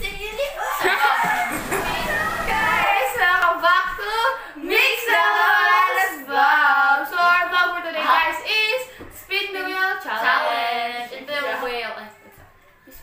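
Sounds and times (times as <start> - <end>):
girls singing: 0.6 - 8.8.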